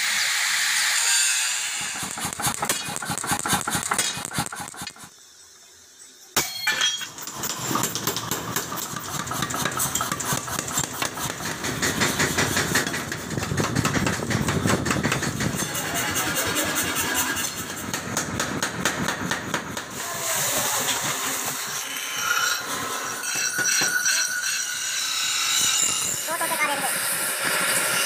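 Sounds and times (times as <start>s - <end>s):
power hammer pounding steel: 1.4s - 5.1s, 6.4s - 28.0s
sharp metal clank: 6.4s - 8.4s.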